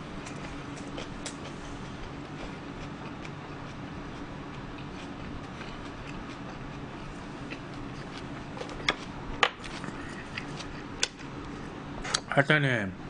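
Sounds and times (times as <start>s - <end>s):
steady background hum: 0.0s - 13.0s.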